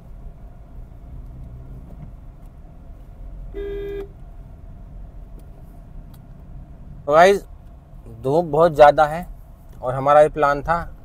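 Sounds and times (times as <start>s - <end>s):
car driving rumble: 0.0s - 11.0s
car horn honk: 3.5s - 4.2s.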